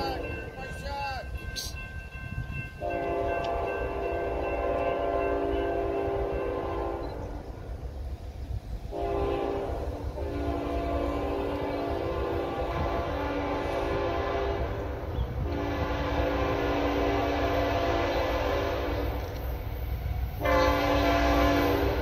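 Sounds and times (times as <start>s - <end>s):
locomotive air horn blasts: 2.8s - 7.3s, 8.9s - 19.3s, 20.4s - 22.0s.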